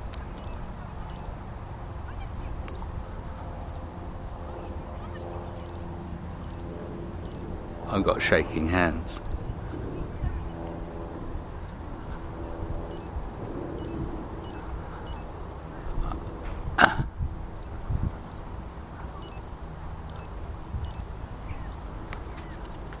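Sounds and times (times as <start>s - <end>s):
low wind rumble: 0.0s - 22.9s
short high peeps: 0.4s - 1.3s, 5.6s - 5.8s, 6.4s - 7.5s, 12.9s - 13.2s, 13.8s - 16.0s, 20.1s - 21.0s.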